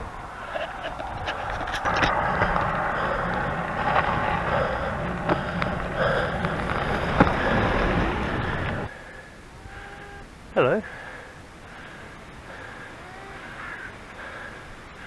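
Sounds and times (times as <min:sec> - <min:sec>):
wind and tyre noise: 0:00.0 - 0:15.0
bicycle clicks and rattles: 0:00.5 - 0:08.9.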